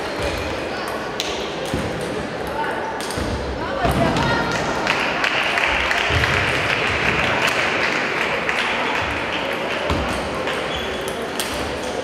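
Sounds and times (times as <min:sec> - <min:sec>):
sports hall background noise: 0:00.0 - 0:12.0.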